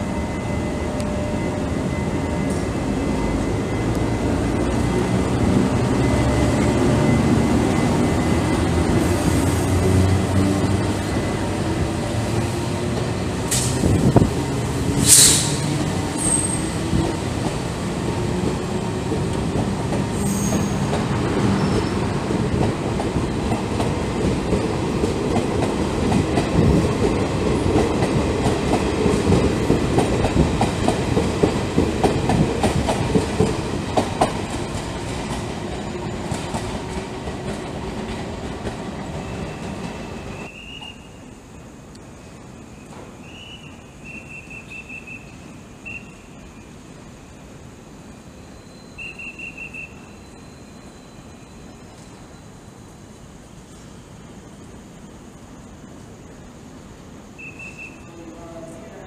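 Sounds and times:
train running hum: 0.0 - 59.0
wheels clacking over rail joints: 14.9 - 40.8.

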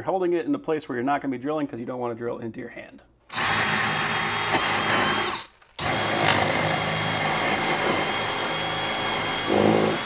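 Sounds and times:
cordless drill whining: 3.3 - 10.0.

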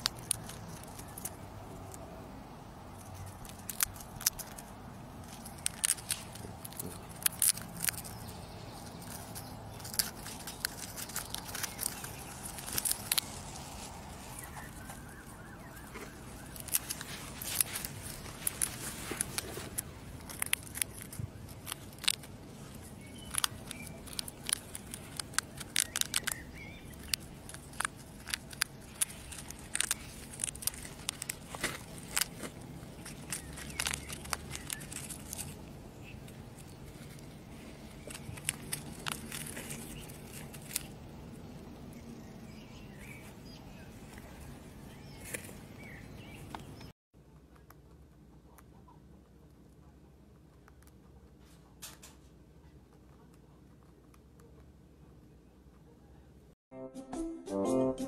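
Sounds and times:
hamster gnawing and crunching: 0.0 - 56.5
rustling in wood shavings: 5.2 - 41.0.

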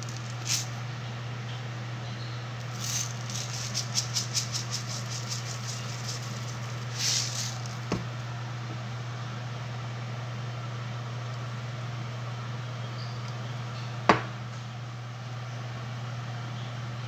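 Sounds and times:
grains pouring into a metal pot: 0.0 - 0.8, 2.6 - 7.9
salt rattling in a plastic tub: 0.0 - 0.8, 2.6 - 8.1
steady low hum: 0.0 - 17.0.

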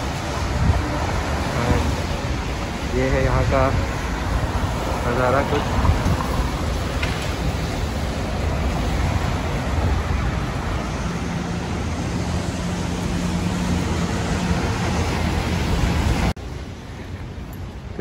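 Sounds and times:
city street traffic: 0.0 - 18.0.

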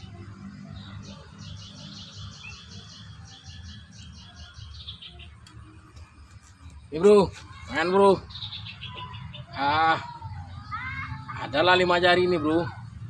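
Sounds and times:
bird chirping rapidly: 0.8 - 5.4, 7.8 - 9.7.

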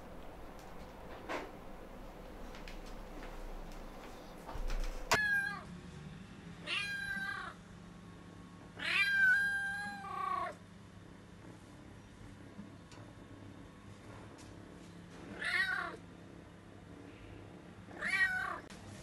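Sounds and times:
kitten meowing: 6.7 - 7.6, 8.8 - 10.6.

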